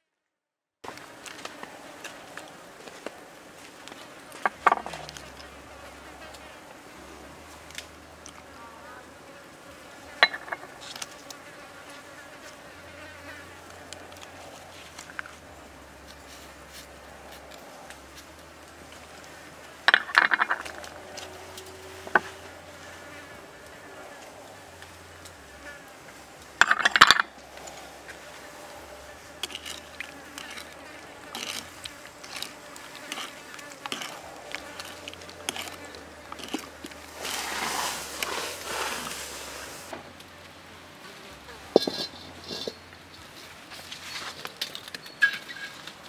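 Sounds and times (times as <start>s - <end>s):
insects buzzing: 0.8s - 46.0s
metal spoon scraping in bowl: 29.4s - 39.2s, 41.8s - 42.8s.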